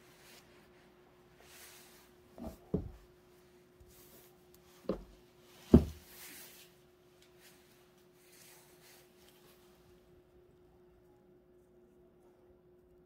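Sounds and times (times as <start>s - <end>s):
faint steady hum: 0.0s - 13.0s
brush swishing on paper: 6.1s - 9.9s.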